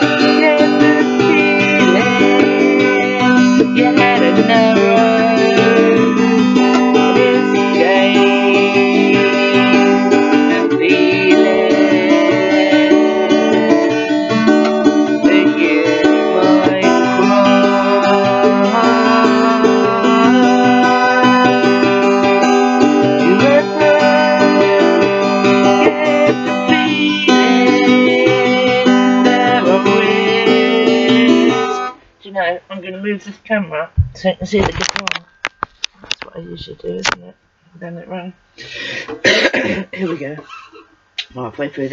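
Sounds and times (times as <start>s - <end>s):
woman singing: 0.0s - 31.9s
acoustic guitar strumming: 0.0s - 32.0s, 39.1s - 40.8s.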